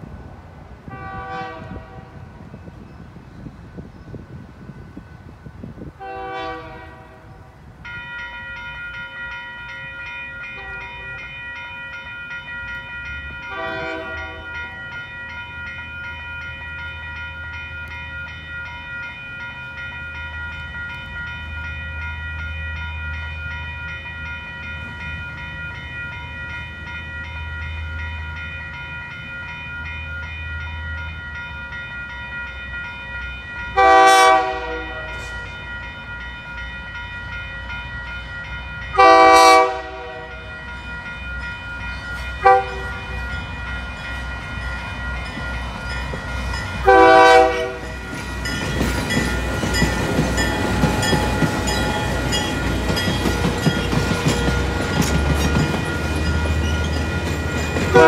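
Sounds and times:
train horn chords: 0.9s - 2.4s, 6.0s - 7.5s, 13.5s - 14.7s, 33.8s - 35.5s, 38.9s - 40.5s, 42.4s - 43.2s, 46.8s - 47.9s
crossing signal bell ringing: 7.7s - 58.0s
locomotive rumble: 39.7s - 58.0s.

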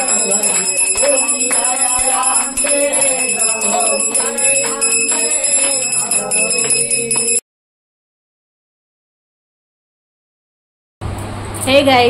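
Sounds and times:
bell ringing: 0.0s - 7.4s
voices singing a hymn: 0.0s - 7.4s.

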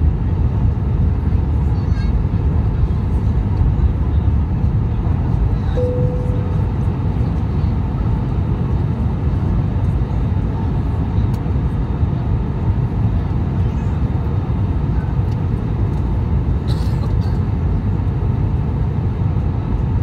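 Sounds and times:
aircraft cabin engine rumble: 0.0s - 20.0s
brief steady tone: 5.8s - 6.9s.

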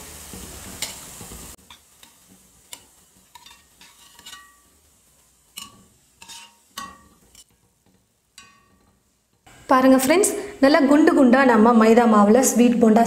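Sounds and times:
oil sizzling: 0.0s - 13.0s
metal spoon clinking on frying pan: 0.8s - 1.0s, 1.6s - 9.1s.

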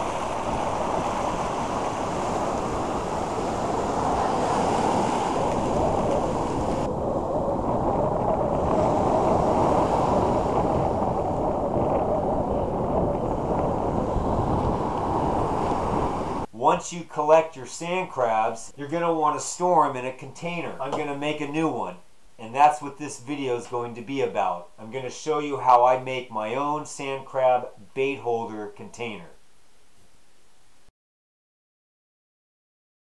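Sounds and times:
ocean surf rushing: 0.0s - 16.5s
wind buffeting microphone: 0.0s - 16.5s.

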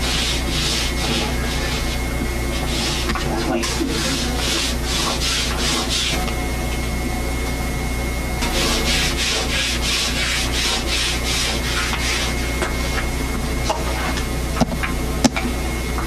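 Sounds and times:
tool scratching rough paper: 0.0s - 6.2s, 8.4s - 12.5s
steady low hum: 0.0s - 16.0s.

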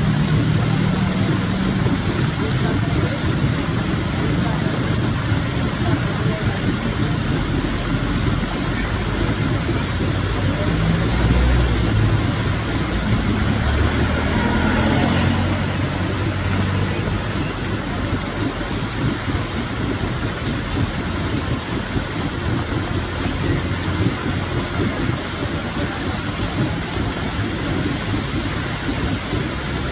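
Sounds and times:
heavy rain: 0.0s - 29.9s
water gushing from drain pipe: 0.0s - 29.9s.

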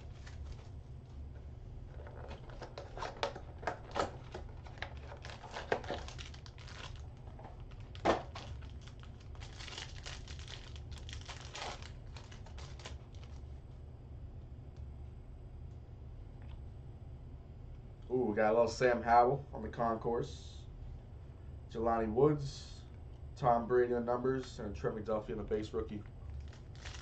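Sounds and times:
card wrapper crinkling: 0.0s - 0.7s, 2.0s - 13.4s, 26.2s - 27.0s
low hum: 0.0s - 27.0s.

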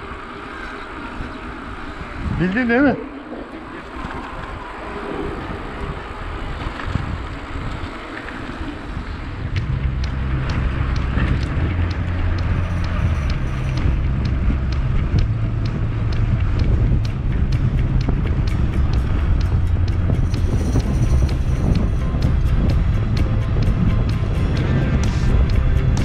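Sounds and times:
mountain bike on rough track: 0.0s - 15.2s
wind buffeting microphone: 0.0s - 26.0s
low drone with sharp ticks: 2.4s - 26.0s.

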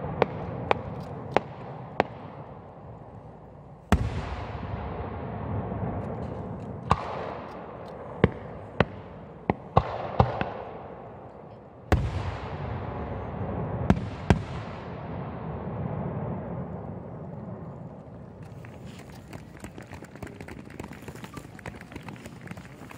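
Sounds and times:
firework shells bursting with echo: 0.0s - 19.6s.

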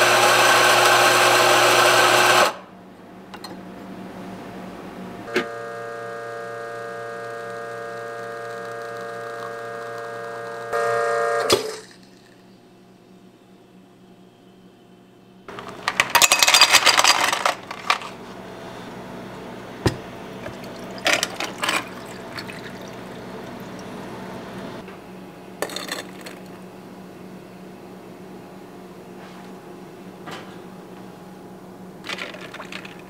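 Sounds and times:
ice cubes clattering into a glass: 15.9s - 18.1s, 20.5s - 23.0s, 25.6s - 26.5s, 32.1s - 33.0s
water pouring over ice: 20.4s - 24.0s, 32.1s - 33.0s
ice clinking against glass: 20.5s - 23.2s.

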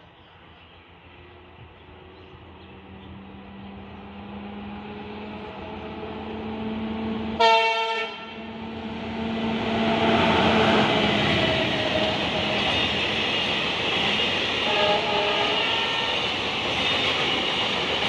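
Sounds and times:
diesel locomotive engine drone: 0.0s - 18.0s
train passing: 0.0s - 18.0s
train horn blast: 7.4s - 8.7s, 14.6s - 16.2s.

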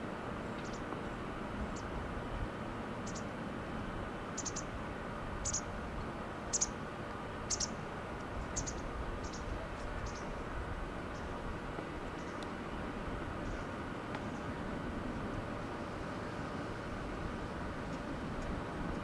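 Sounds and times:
distant jet airliner roar: 0.0s - 19.0s.

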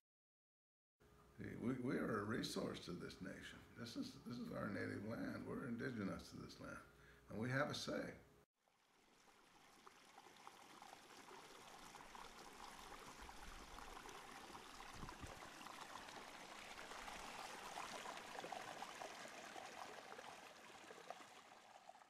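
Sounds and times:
stream running water: 8.6s - 22.0s.

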